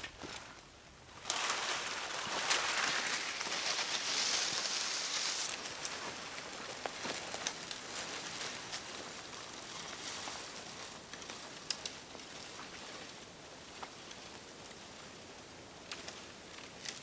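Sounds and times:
twigs snapping: 1.2s - 9.0s, 11.0s - 12.6s
branch dragged through brush: 1.2s - 13.0s.

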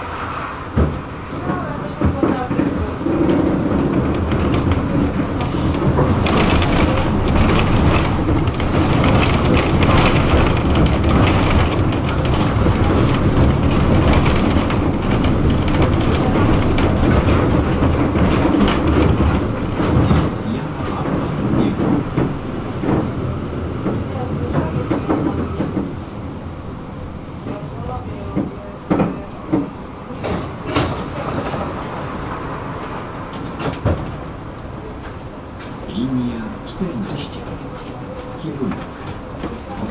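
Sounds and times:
tram rumbling on rails: 0.0s - 39.9s
clicks and clatter over track: 0.8s - 26.1s.

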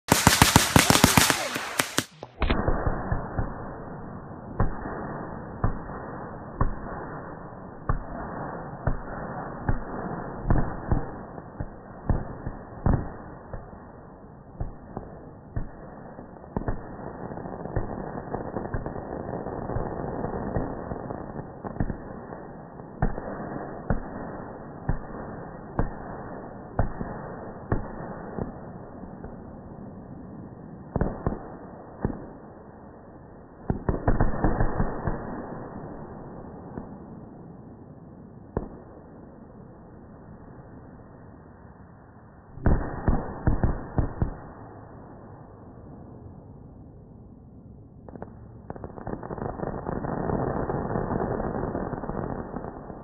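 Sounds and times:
fireworks bangs: 0.0s - 7.1s
fireworks crackling: 0.0s - 7.2s, 48.2s - 53.0s.

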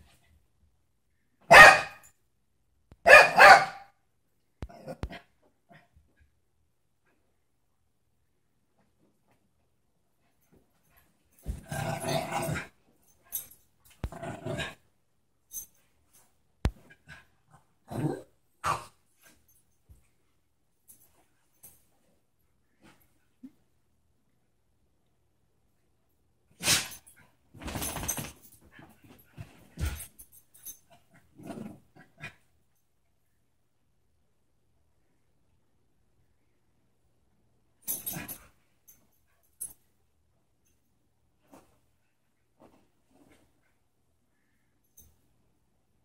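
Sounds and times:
small dog play-growling: 11.4s - 12.8s, 14.0s - 14.8s, 17.1s - 19.0s, 31.1s - 32.4s
dogs scuffling: 26.7s - 30.3s.

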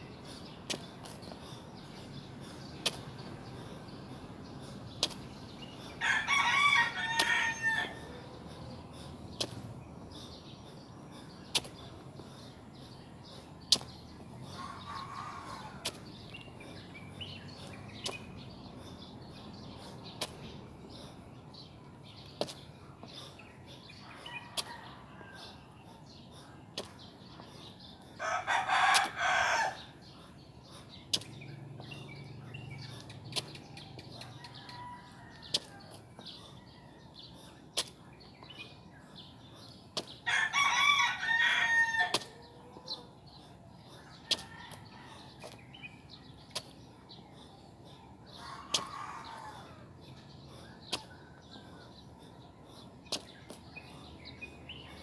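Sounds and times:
rooster crowing: 6.0s - 8.0s, 28.2s - 29.8s, 40.3s - 42.2s.

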